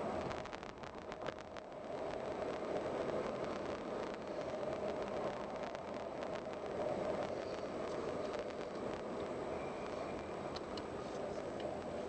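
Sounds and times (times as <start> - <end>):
road and tyre noise: 0.0 - 12.0
faint high-pitched tone: 9.3 - 10.6.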